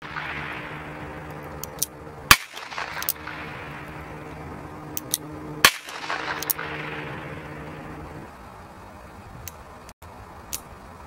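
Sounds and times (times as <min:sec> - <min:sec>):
revolver shots: 0:00.0 - 0:08.0.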